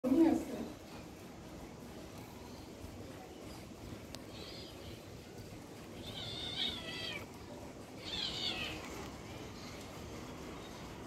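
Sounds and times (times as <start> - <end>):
kitten meowing: 6.0 - 7.3, 8.0 - 9.0.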